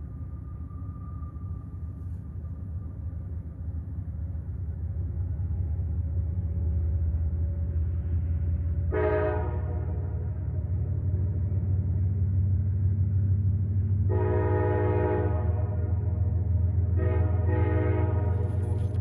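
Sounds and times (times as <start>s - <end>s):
train rumbling: 0.0s - 19.0s
train horn blast: 8.8s - 10.6s, 14.1s - 19.0s.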